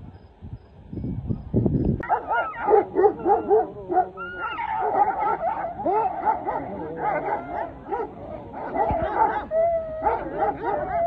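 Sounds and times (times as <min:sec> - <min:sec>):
dogs fighting: 0:02.0 - 0:11.0
dogs yelping and barking: 0:02.0 - 0:11.0.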